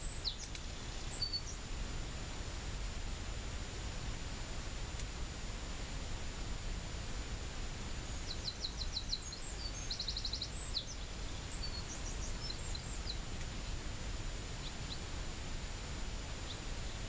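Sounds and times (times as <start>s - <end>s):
songbird trilling: 0.0s - 1.6s, 8.1s - 13.2s
faint high whine: 0.0s - 17.0s.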